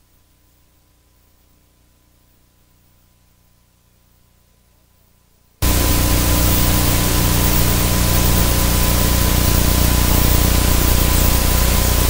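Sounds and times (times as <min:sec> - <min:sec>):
static hiss: 0:00.0 - 0:12.0
low hum: 0:05.6 - 0:12.0
thin steady tone: 0:05.6 - 0:12.0.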